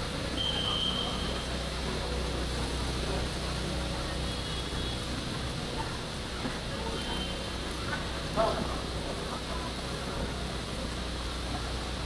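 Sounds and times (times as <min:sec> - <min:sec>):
traffic hum and hiss: 0:00.0 - 0:12.0.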